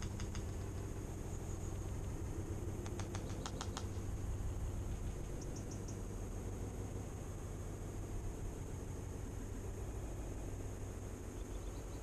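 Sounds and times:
bird pecking seed clicks: 0:00.0 - 0:00.6, 0:02.8 - 0:04.0
steady low hum: 0:00.0 - 0:12.0.

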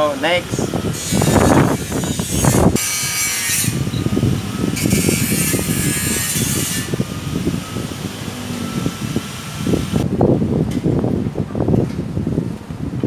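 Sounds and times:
wires rubbing and scraping: 0:00.9 - 0:03.9, 0:04.8 - 0:07.2.

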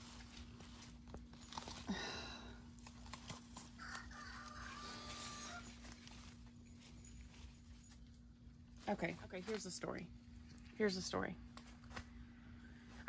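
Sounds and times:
leaves rustling and stems snapping: 0:00.0 - 0:01.9, 0:02.7 - 0:04.4
steady low hum: 0:00.0 - 0:13.0.

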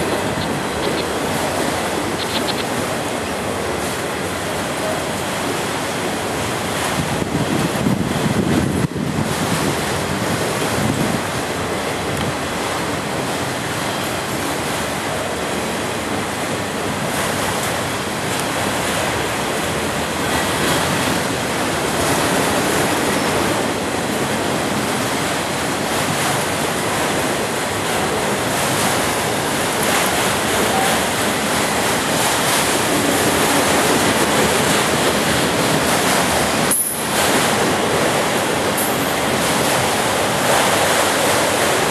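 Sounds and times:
wind on microphone: 0:00.0 - 0:03.1, 0:06.7 - 0:12.4
freight train wheels rushing on rail: 0:00.0 - 0:41.9.

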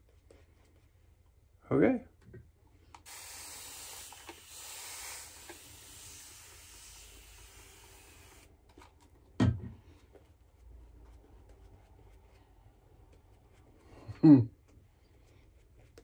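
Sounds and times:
shaving brush lathering: 0:03.1 - 0:08.4.

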